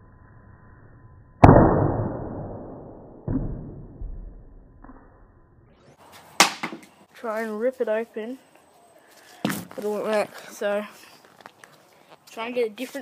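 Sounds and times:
coconut thudding on pavers: 6.4 - 6.9.

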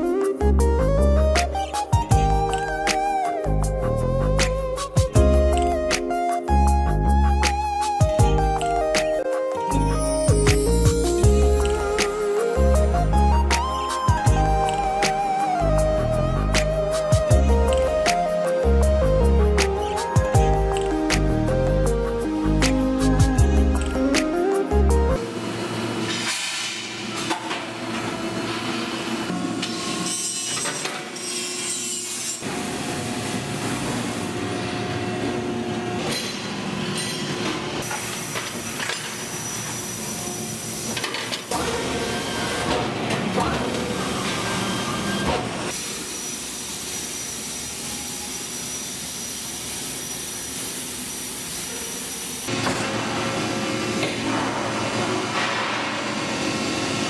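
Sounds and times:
metalworking machinery: 25.2 - 57.0.

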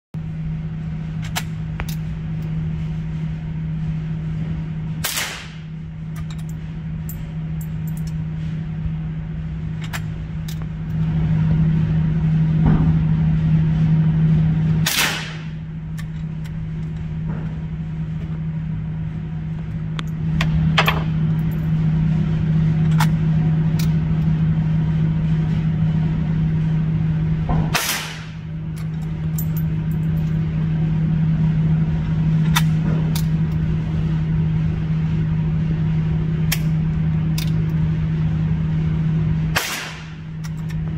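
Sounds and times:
steady low hum: 0.1 - 40.9
rifle shots: 5.0 - 5.6, 14.9 - 15.6, 27.7 - 28.4, 39.6 - 40.2.

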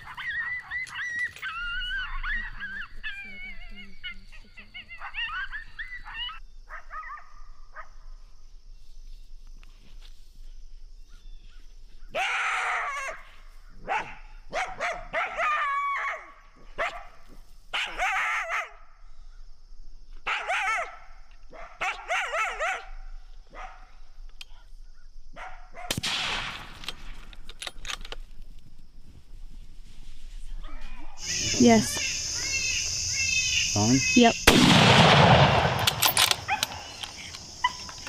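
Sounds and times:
coyotes barking and yipping: 0.0 - 8.3, 11.0 - 19.4, 20.1 - 26.4, 30.6 - 38.0.

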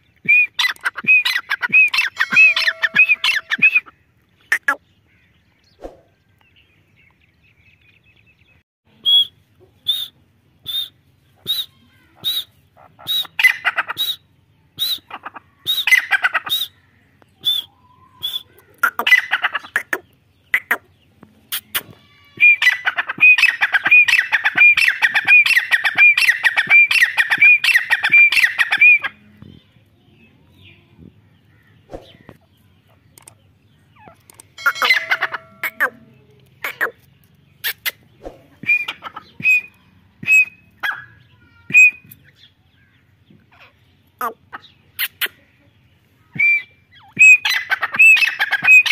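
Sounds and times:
francolin calling: 0.0 - 5.3.

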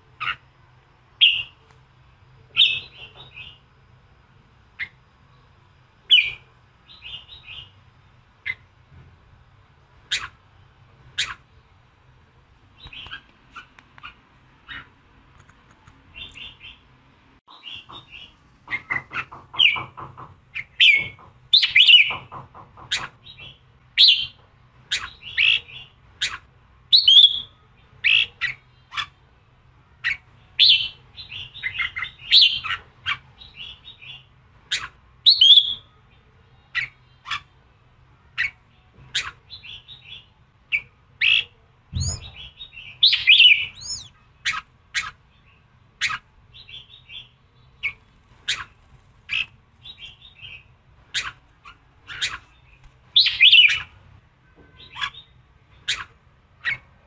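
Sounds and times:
bulbul chirping song: 1.2 - 1.6, 4.8 - 7.8, 10.1 - 10.4, 16.1 - 29.2, 30.0 - 37.5, 38.2 - 54.0, 54.7 - 57.0.

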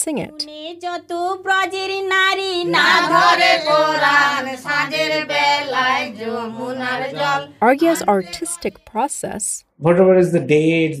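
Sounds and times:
several voices chanting: 2.6 - 8.9.

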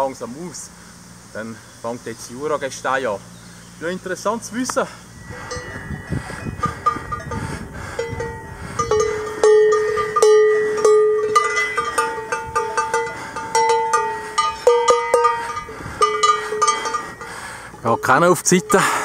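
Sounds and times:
cowbells clanking: 5.2 - 19.0.

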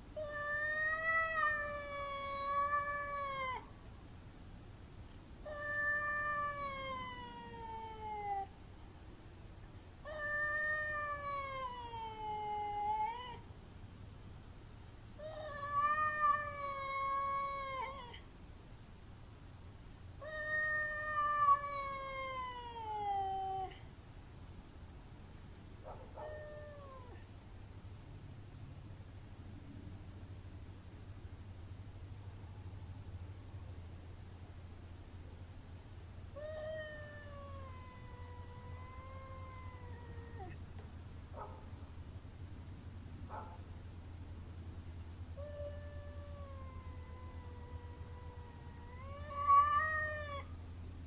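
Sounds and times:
cat yowling: 0.2 - 3.6, 5.4 - 8.6, 10.0 - 13.4, 15.2 - 18.2, 20.2 - 23.8, 26.0 - 27.2, 36.4 - 40.6, 45.4 - 50.5.

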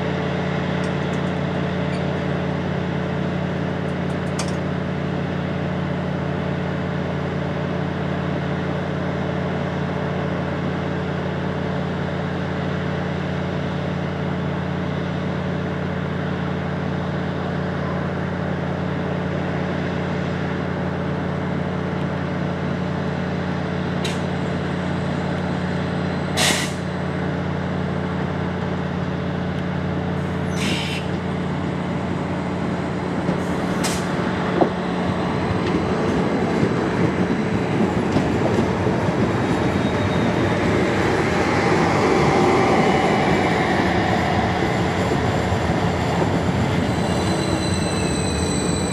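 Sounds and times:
diesel train idling drone: 0.0 - 48.9
air brake hisses: 26.4 - 26.9, 30.5 - 31.1.

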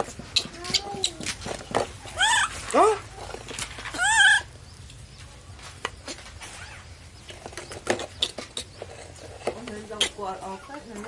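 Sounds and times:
baby monkey high call: 2.1 - 2.6, 3.9 - 4.5.

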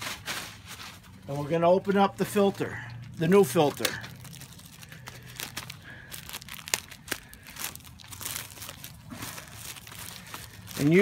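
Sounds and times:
plastic wrapping crinkling and tearing: 3.0 - 11.0.

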